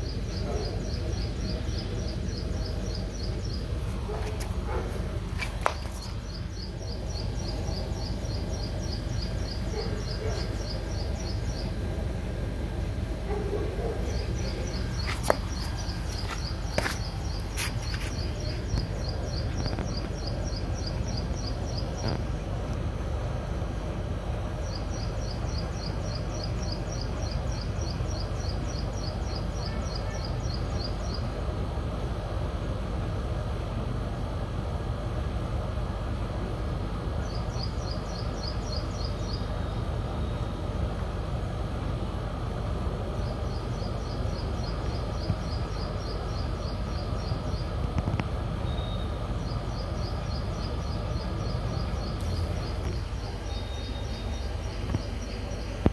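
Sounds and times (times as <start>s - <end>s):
steady low rumble: 0.0s - 29.7s, 30.4s - 55.9s.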